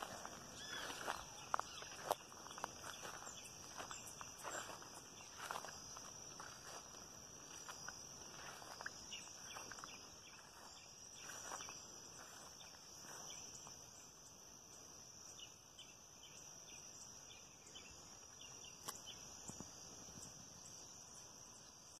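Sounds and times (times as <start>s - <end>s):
footsteps through grass: 0.0s - 13.9s
insects chirping: 0.0s - 22.0s.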